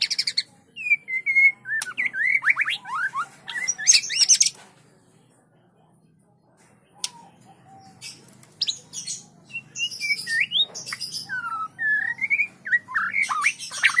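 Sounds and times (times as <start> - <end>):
harsh bird chattering: 0.0 - 4.6, 7.0 - 14.0
bird chirps and clicks: 1.7 - 4.8, 6.6 - 7.4, 8.0 - 8.8
whistled bird notes: 7.0 - 14.0.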